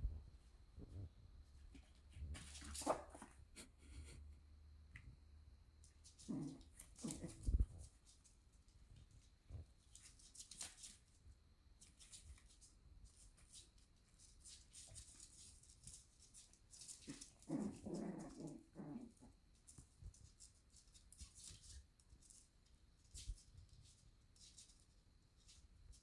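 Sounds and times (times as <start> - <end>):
paws scuffling on floor: 5.9 - 11.2, 11.8 - 26.0.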